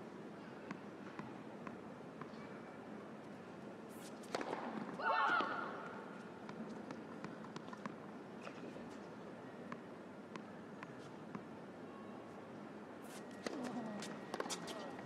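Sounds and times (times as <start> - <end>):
tennis ball bouncing on court: 0.7 - 2.4, 4.2 - 5.8, 6.4 - 8.6, 9.7 - 11.5, 13.4 - 14.9.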